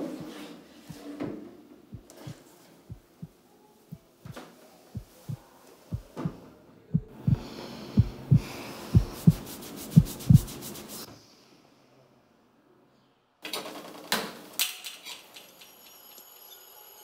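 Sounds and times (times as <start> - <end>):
heartbeat double thumps: 1.9 - 4.0, 5.0 - 6.3, 6.9 - 10.6.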